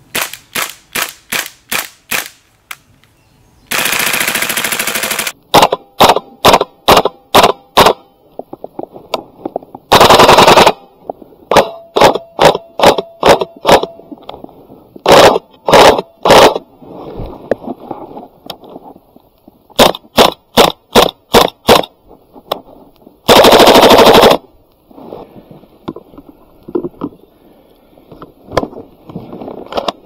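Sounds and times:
airsoft gun full-auto burst: 3.7 - 8.0, 9.9 - 10.8, 15.1 - 16.6, 19.8 - 21.9, 23.3 - 24.4.

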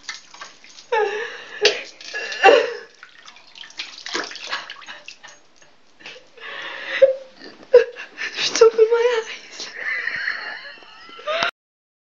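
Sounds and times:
water splashing in washbasin: 0.0 - 5.7.

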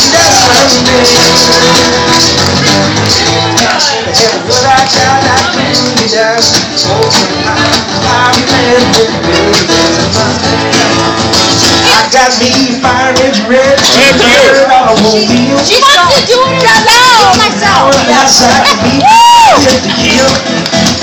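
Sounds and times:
man singing into a microphone: 0.0 - 10.8, 11.8 - 20.6
acoustic guitar strumming: 0.0 - 21.0.

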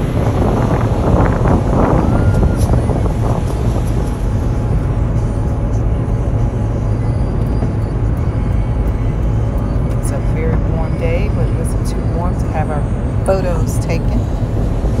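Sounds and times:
surf washing: 0.0 - 8.1
wind buffeting microphone: 0.0 - 15.0.

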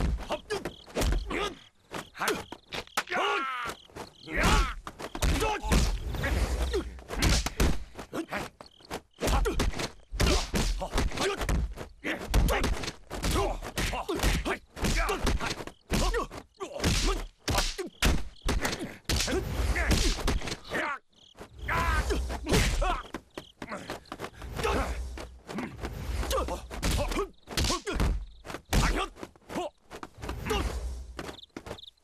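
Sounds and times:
fighters grunting: 3.1 - 8.6, 9.2 - 21.0, 21.6 - 30.8
punches and kicks landing: 4.4 - 6.1, 9.2 - 20.6, 26.8 - 29.1.

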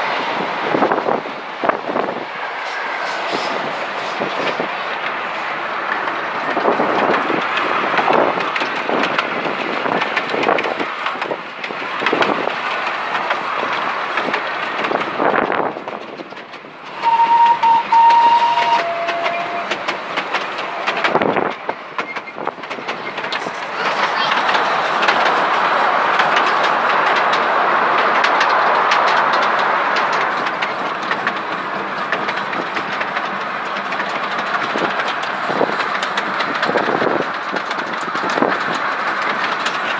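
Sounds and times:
train wheels clattering over rail joints: 0.6 - 39.9
two-note train whistle: 17.0 - 19.8
steady rushing noise: 19.6 - 39.9.

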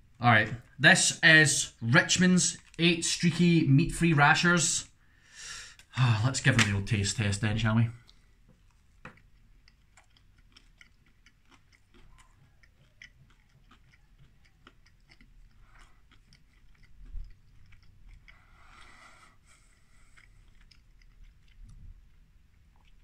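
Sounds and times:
person chewing: 0.6 - 3.5, 8.0 - 23.0.

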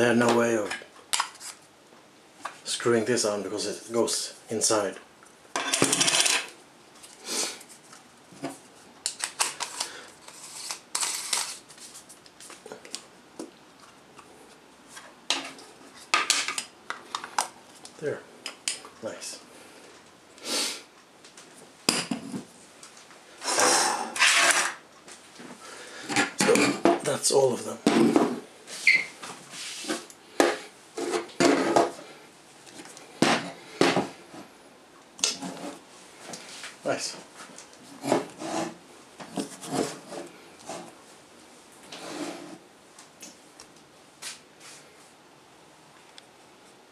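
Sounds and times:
rubber scraping and rubbing: 35.2 - 35.8, 37.9 - 40.9.

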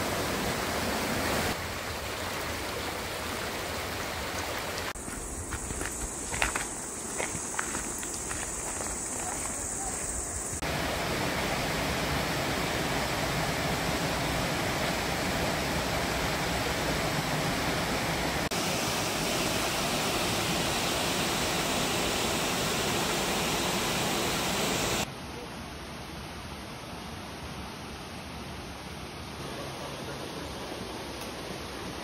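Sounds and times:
stream and waterfalls rushing: 0.0 - 25.1.

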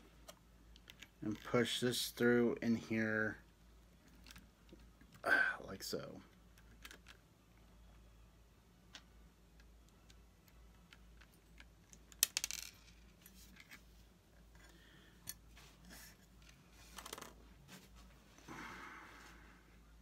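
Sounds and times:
small metal parts clicking: 10.9 - 13.0.

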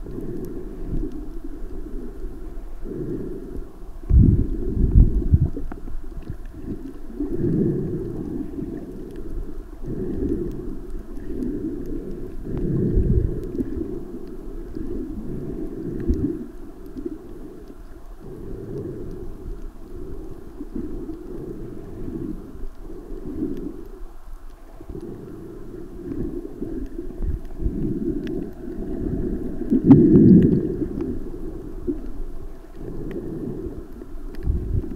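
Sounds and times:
underwater rumble of moving water: 0.0 - 34.9.

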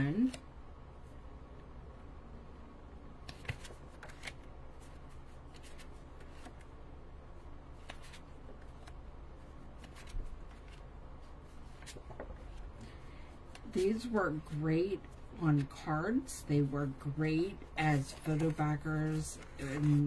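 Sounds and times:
cards sliding and tapping: 7.8 - 9.0.

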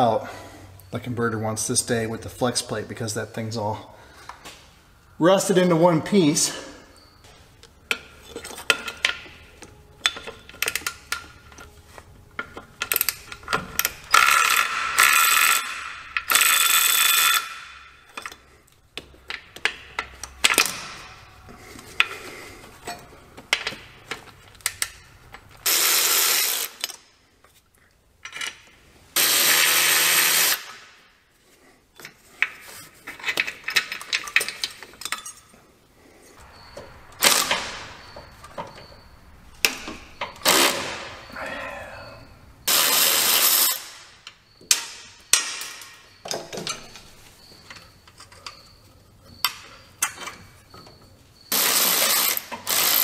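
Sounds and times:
tool and bolts clicking: 7.6 - 11.8, 12.4 - 21.2, 22.8 - 27.6, 28.2 - 29.4, 32.0 - 35.5, 42.7 - 53.0
electric ratchet running: 13.8 - 17.7, 25.7 - 26.8, 29.2 - 30.7, 42.7 - 43.9, 51.5 - 53.0.

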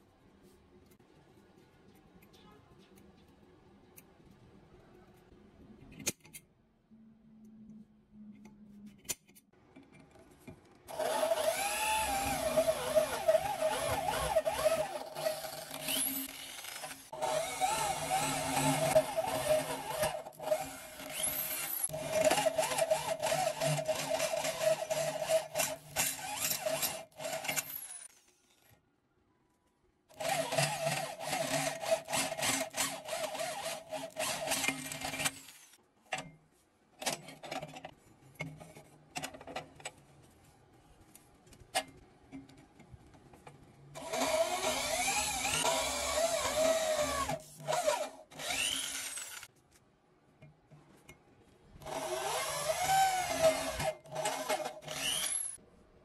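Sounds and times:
electric drill whining: 10.9 - 21.9, 44.0 - 49.5, 51.8 - 55.6.

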